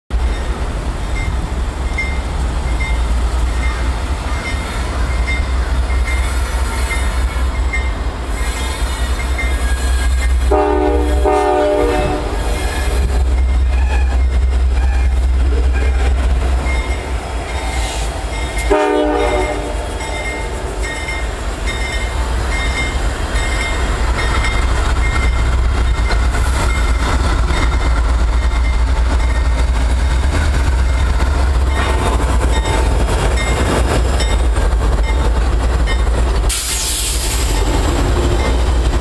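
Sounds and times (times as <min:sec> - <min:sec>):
diesel locomotive engines rumbling: 0:00.1 - 0:39.0
train horn blast: 0:08.4 - 0:14.2, 0:18.6 - 0:20.6
wheel and rail clatter: 0:12.3 - 0:39.0.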